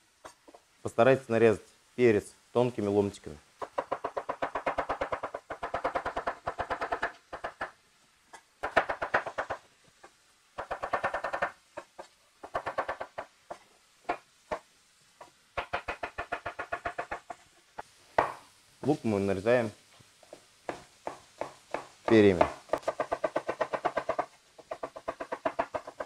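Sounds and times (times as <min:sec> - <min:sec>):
knife chopping on wooden board: 0:08.6 - 0:09.6, 0:10.6 - 0:17.4, 0:18.2 - 0:18.4, 0:20.7 - 0:26.0.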